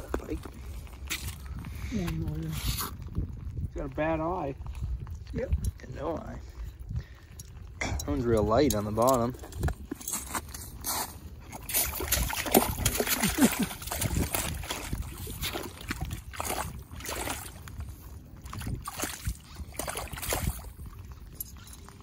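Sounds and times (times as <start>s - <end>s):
fish splashing in water: 11.5s - 21.0s.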